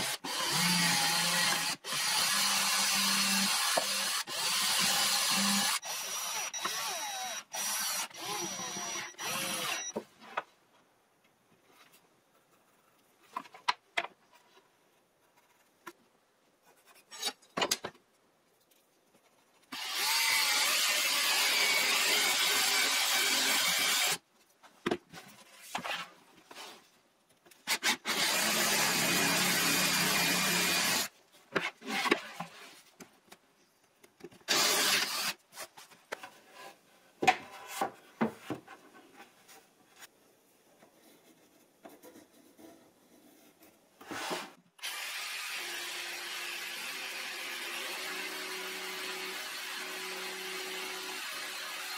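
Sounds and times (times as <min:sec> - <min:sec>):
cordless drill driving screws: 0:00.0 - 0:09.9, 0:19.8 - 0:24.2, 0:34.5 - 0:35.4
drill boring into wood: 0:00.0 - 0:09.9, 0:19.8 - 0:24.2, 0:27.8 - 0:31.1, 0:34.5 - 0:35.4, 0:44.8 - 0:51.9.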